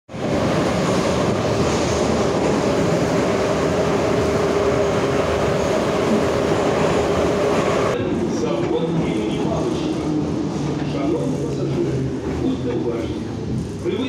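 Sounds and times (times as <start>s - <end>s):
train wheels rumbling: 0.1s - 14.0s.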